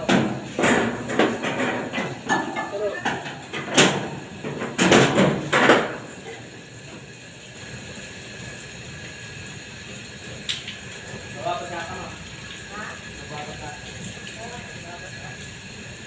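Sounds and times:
metal knocks and bangs: 0:00.0 - 0:06.0
steady background noise: 0:00.0 - 0:16.0.

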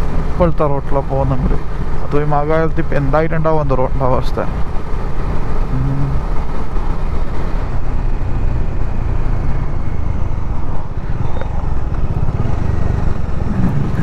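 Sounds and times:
motorcycle engine cruising: 0:00.0 - 0:14.0.

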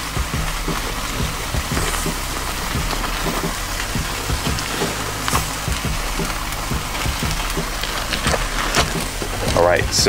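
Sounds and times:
steak fat sizzling and popping: 0:00.0 - 0:10.0.

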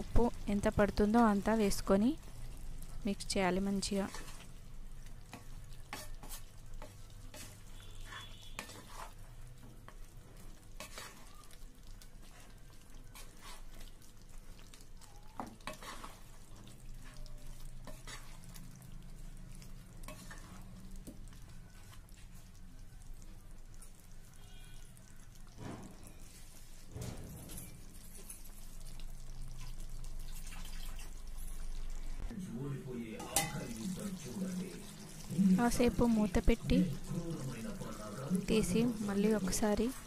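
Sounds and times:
spatula scraping and knocking a pan: 0:05.4 - 0:09.2.

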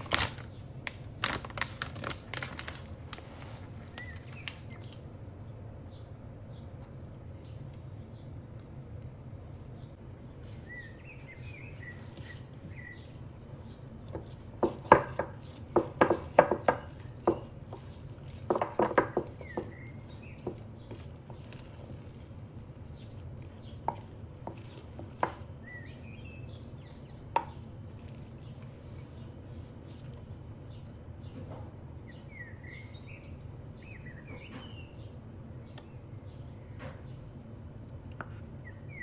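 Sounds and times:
wooden spoon knocking ceramic bowl: 0:14.1 - 0:21.5.

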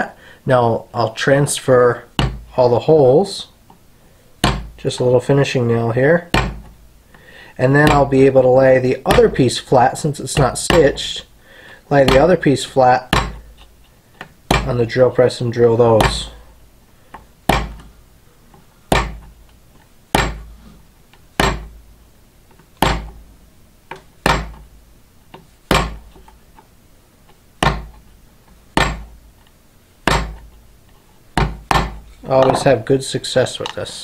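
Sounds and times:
small hammer tapping a nail: 0:21.4 - 0:21.7.

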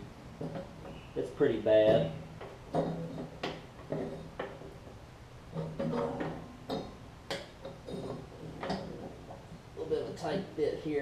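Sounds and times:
clicks and knocks of belt and pulleys: 0:01.9 - 0:10.4.

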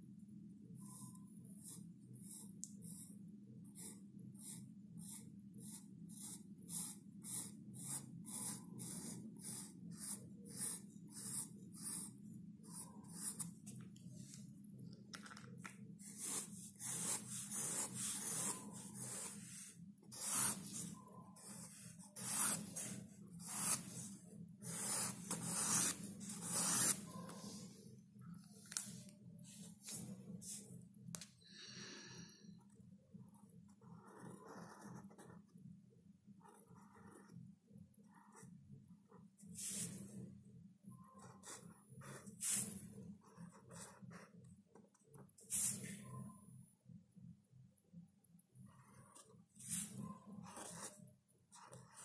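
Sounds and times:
pen scratching on paper: 0:00.8 - 0:14.4, 0:16.0 - 0:27.8, 0:33.3 - 0:35.5, 0:36.4 - 0:37.4, 0:38.1 - 0:40.2, 0:40.9 - 0:46.2, 0:48.7 - 0:52.0.

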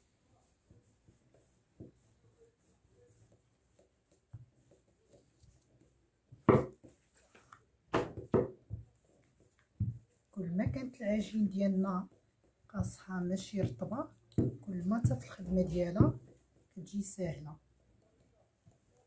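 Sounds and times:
rolling pin rolling dough: 0:00.0 - 0:19.0
rolling pin knocking on worktop: 0:06.4 - 0:06.8, 0:07.9 - 0:08.8.

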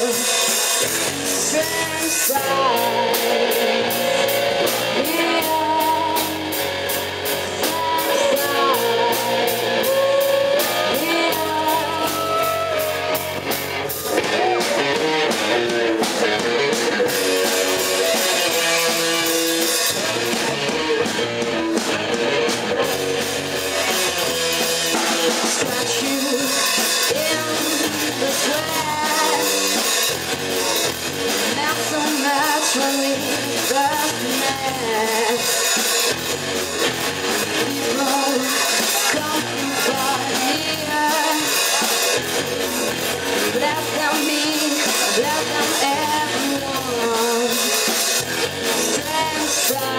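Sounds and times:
woman singing: 0:00.0 - 0:06.6, 0:07.2 - 0:13.5, 0:25.3 - 0:30.2, 0:31.4 - 0:35.7, 0:37.5 - 0:42.0, 0:43.4 - 0:49.9
live rock band playing: 0:00.0 - 0:49.9.

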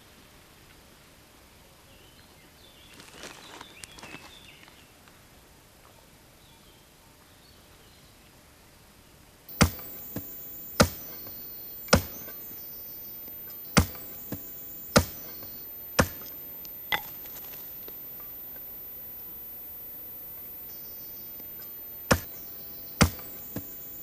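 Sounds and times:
shovel chopping into turf: 0:09.6 - 0:12.6, 0:13.5 - 0:17.7, 0:22.1 - 0:24.0.

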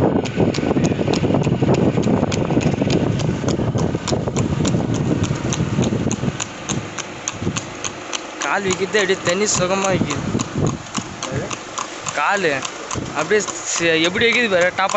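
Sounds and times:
low rumble: 0:00.0 - 0:07.7
horse hooves trotting on asphalt: 0:00.0 - 0:14.9.

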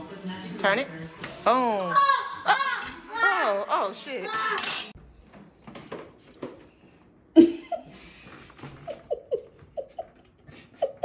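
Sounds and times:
person laughing: 0:07.4 - 0:11.0.

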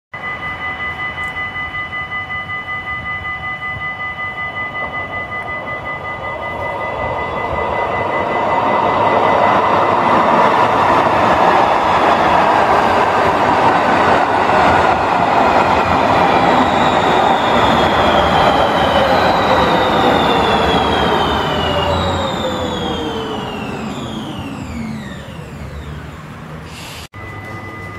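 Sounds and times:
train wheels rushing on rail: 0:04.7 - 0:27.9
electric motor whine: 0:18.1 - 0:26.2.

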